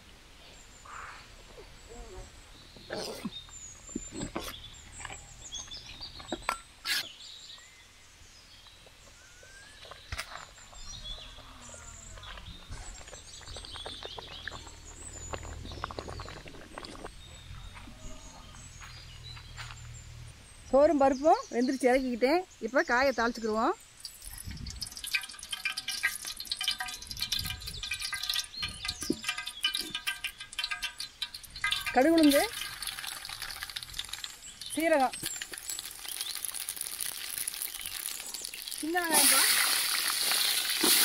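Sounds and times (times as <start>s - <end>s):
birds chirping and calling: 9.8s - 36.4s
sharp knocks and clatters: 24.8s - 36.2s.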